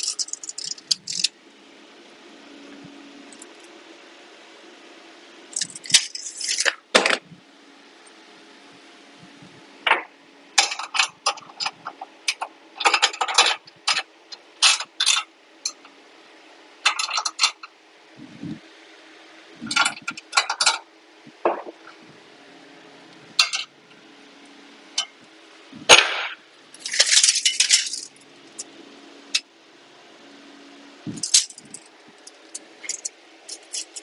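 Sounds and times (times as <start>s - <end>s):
metal tools clinking on steel frame: 0.0s - 1.3s, 10.6s - 15.9s, 16.8s - 17.7s, 19.7s - 20.8s, 23.4s - 23.7s, 26.7s - 28.7s, 31.1s - 34.0s.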